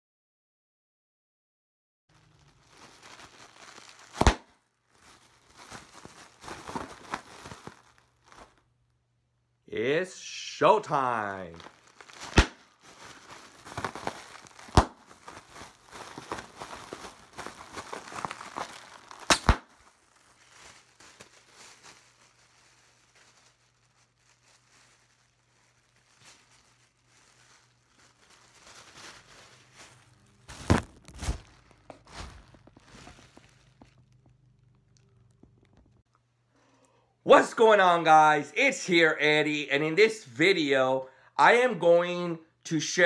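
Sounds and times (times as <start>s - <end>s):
plastic film crinkling: 2.1s - 9.0s, 10.8s - 36.2s
sharp plastic snaps: 19.2s - 19.7s.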